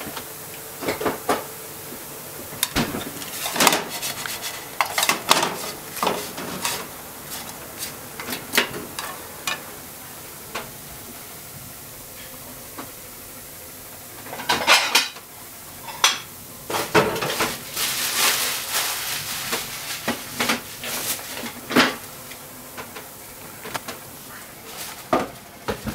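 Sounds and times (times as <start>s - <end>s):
dishes and utensils clinking: 2.6s - 9.6s, 14.3s - 15.2s, 15.8s - 17.6s.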